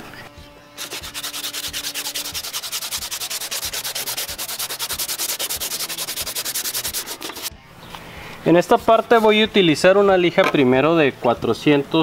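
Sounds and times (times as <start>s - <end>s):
sandpaper rubbing on plastic: 0.8s - 7.5s.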